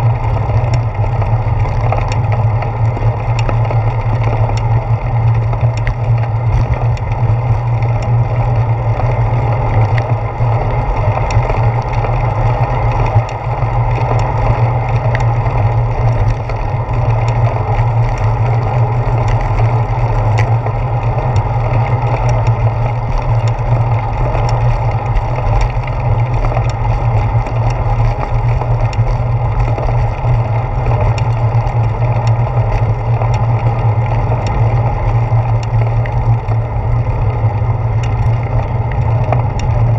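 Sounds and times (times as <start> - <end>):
road vibration: 0.0 - 39.9
small ticks and rattles: 0.0 - 39.9
wind rumble: 0.0 - 39.9.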